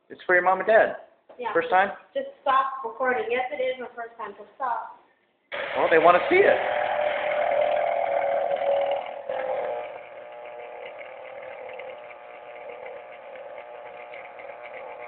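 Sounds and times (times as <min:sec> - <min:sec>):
electric juicer motor whirring: 0:05.5 - 0:15.0.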